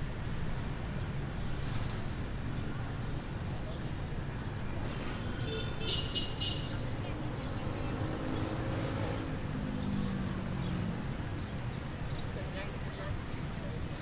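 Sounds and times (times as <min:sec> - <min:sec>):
distant traffic hum: 0:00.0 - 0:14.0.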